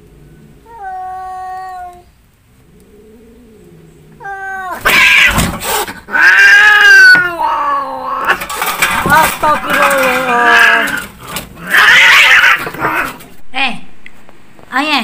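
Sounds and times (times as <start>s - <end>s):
cats fighting and yowling: 0.1s - 13.4s
thump: 5.3s - 5.7s.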